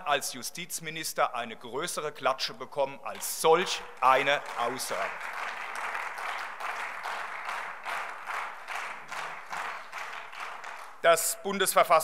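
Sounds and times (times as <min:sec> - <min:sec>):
people clapping: 0:03.2 - 0:11.8.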